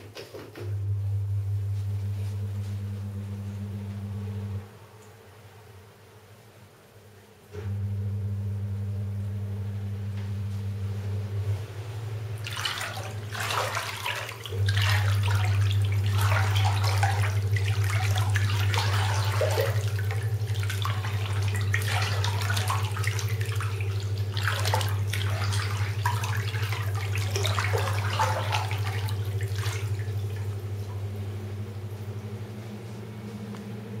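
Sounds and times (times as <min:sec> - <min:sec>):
low mechanical hum: 0:00.0 - 0:34.0
bath water sloshing and splashing: 0:11.9 - 0:33.4.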